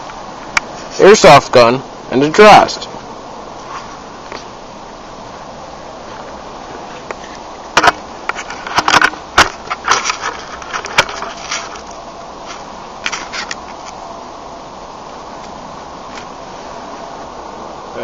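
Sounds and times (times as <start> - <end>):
sharp clicks and knocks: 7.8 - 11.9.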